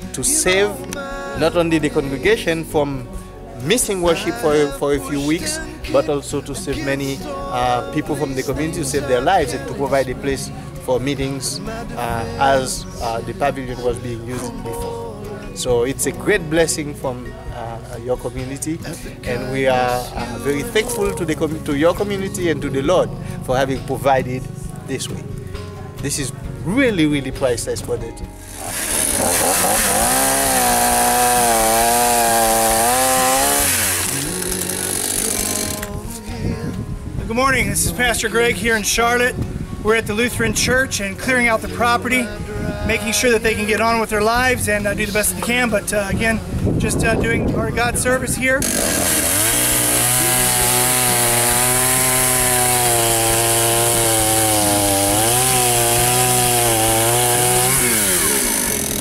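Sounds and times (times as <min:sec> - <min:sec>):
chainsaw cutting a branch: 0:28.4 - 0:36.0, 0:48.6 - 0:59.0.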